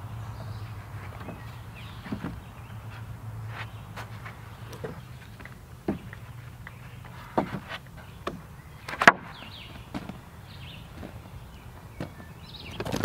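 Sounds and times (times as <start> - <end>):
wooden boards knocking on lumber pile: 1.1 - 2.5, 3.6 - 10.2, 10.9 - 13.0.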